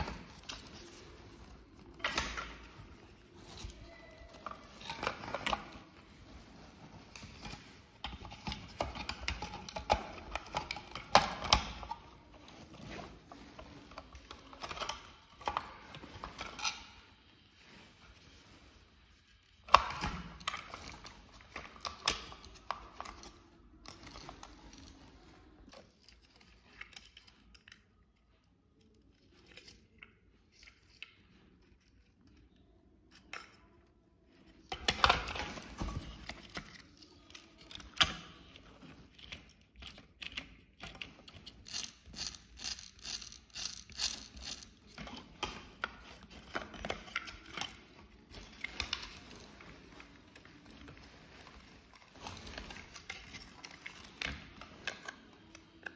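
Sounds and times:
plastic toy parts clicking: 0:34.7 - 0:49.4.

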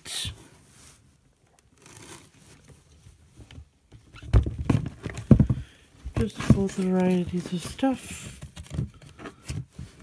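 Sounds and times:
hand rustling through produce: 0:00.4 - 0:03.3
vegetables knocking in a box: 0:04.3 - 0:07.0.

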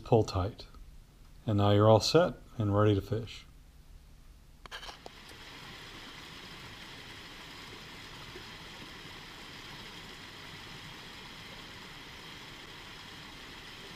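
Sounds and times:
stream rushing over rocks: 0:05.1 - 0:13.9.

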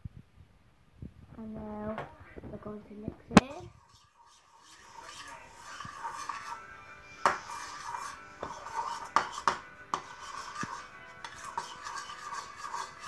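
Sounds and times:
background music: 0:04.8 - 0:13.0.

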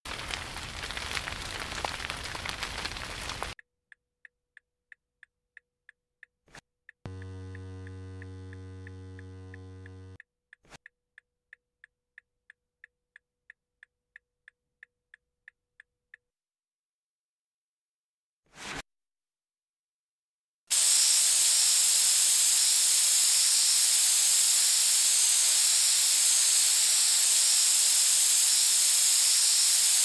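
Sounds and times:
clock ticking: 0:04.2 - 0:16.2
faint hum: 0:07.1 - 0:10.2
loud low electric buzz: 0:07.1 - 0:10.2
switch click: 0:07.1 - 0:10.2.

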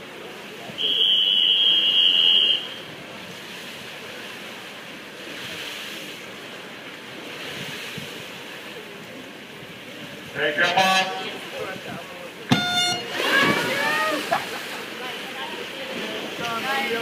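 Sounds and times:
poolside background hush: 0:00.0 - 0:17.0
whistle long blast: 0:00.8 - 0:02.8, 0:12.5 - 0:13.2.

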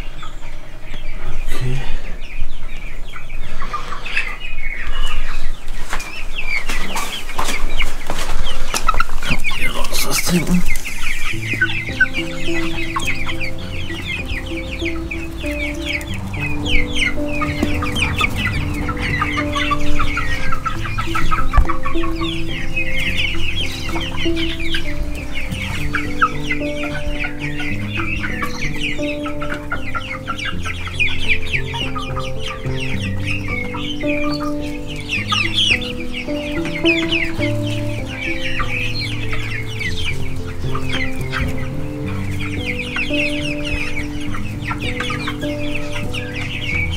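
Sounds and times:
chicks peeping and clucking: 0:00.0 - 0:46.9
background music with held chords: 0:09.6 - 0:46.9.

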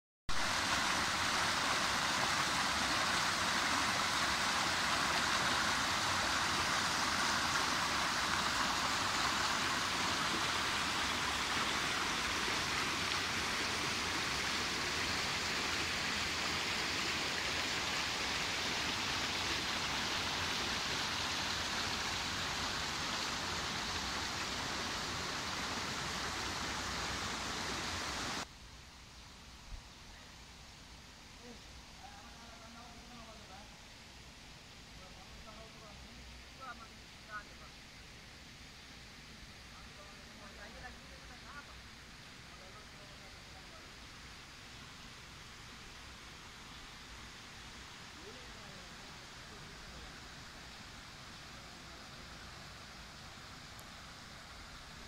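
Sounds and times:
stream rushing over stones: 0:00.3 - 0:28.5.

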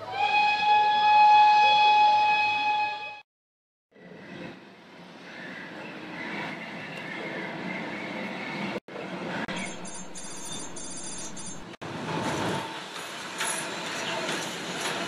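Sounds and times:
high rapid chirping: 0:09.5 - 0:11.8.

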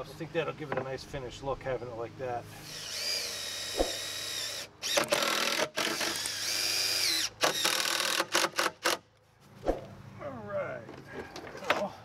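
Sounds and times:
cordless drill motor whining: 0:02.6 - 0:08.4.

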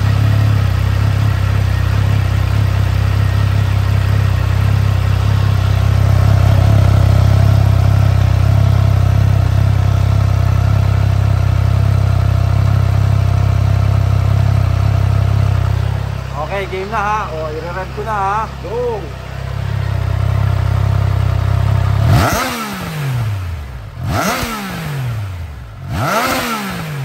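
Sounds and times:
motorcycle engine idling: 0:00.0 - 0:27.0.

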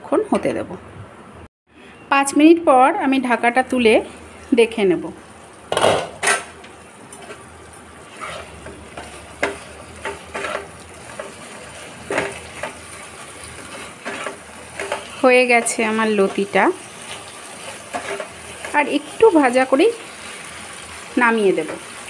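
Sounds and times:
faint sizzle: 0:01.8 - 0:22.0
spatula scraping a pan: 0:07.2 - 0:19.4.

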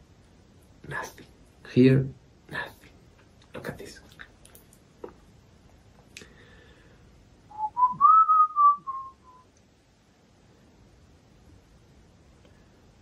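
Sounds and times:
man whistling: 0:07.5 - 0:09.5.

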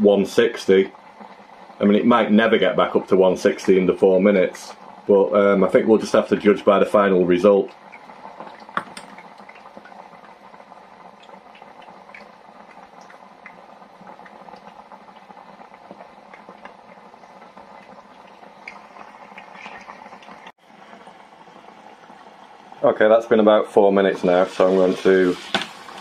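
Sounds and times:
chips deep-frying in oil: 0:00.0 - 0:26.0
small pops and crackles: 0:07.6 - 0:21.2.

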